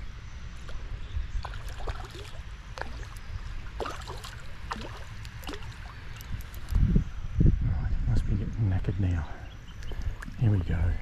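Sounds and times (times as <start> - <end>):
steady low rumble: 0.0 - 11.0
fish splashing at water surface: 1.4 - 6.3.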